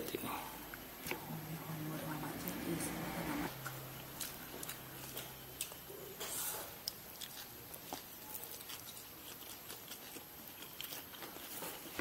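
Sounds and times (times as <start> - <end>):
chewing with wet clicks: 3.6 - 6.0, 6.8 - 12.0.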